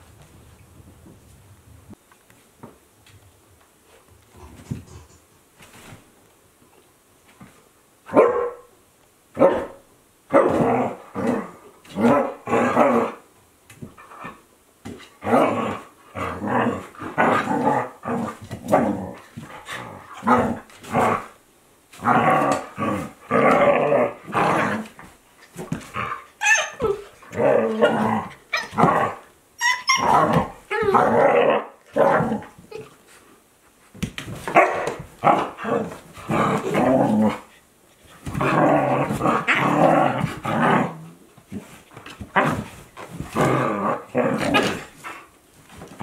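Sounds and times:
dogs barking: 8.1s - 8.7s.

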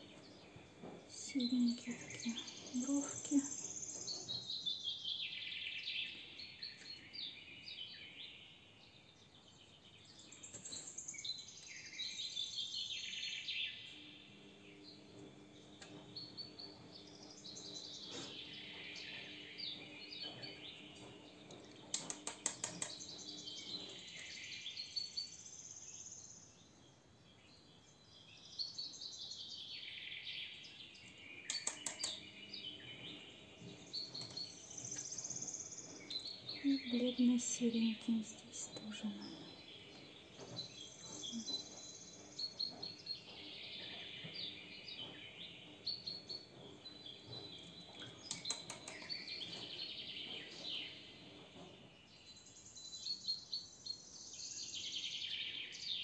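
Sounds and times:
sharp clicks: 21.5s - 23.2s, 31.5s - 32.2s, 47.9s - 49.6s.

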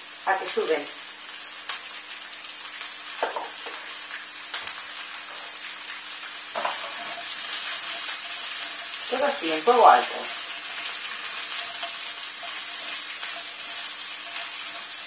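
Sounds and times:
vegetables sizzling in hot oil: 0.0s - 15.0s
spatula stirring in wok: 6.6s - 15.0s.

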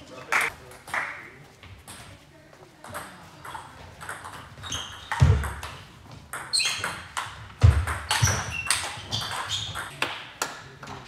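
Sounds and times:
short high squeaks: 4.6s - 5.2s, 8.1s - 9.9s.

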